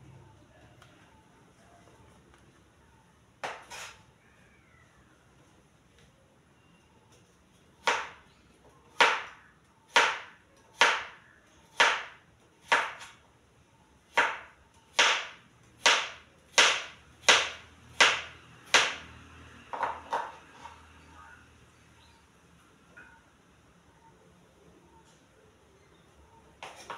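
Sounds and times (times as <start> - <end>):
knife chopping on cutting board: 3.4 - 4.0, 11.8 - 13.1, 14.2 - 19.0.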